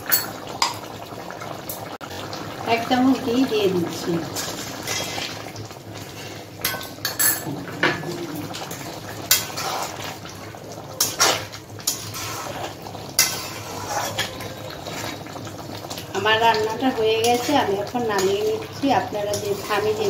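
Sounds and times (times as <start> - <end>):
curry bubbling: 0.0 - 20.0
spatula scraping metal pan: 4.4 - 5.4, 9.2 - 10.2, 11.0 - 15.3, 17.2 - 18.4, 19.1 - 20.0.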